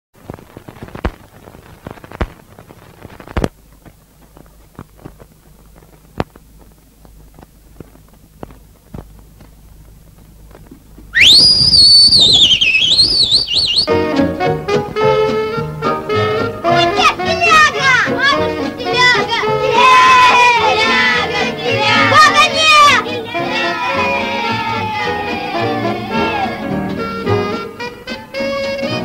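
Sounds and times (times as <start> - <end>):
old film crackle and pops: 0.2 - 13.9
high warbling whistle: 11.2 - 14.0
music: 13.9 - 29.0.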